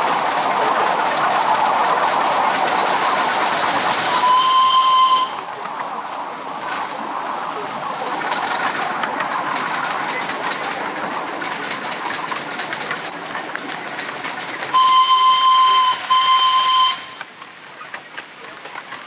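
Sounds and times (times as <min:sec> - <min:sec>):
steam locomotive hissing: 0:00.0 - 0:17.2
steam whistle blasts: 0:04.1 - 0:05.5, 0:14.7 - 0:17.2.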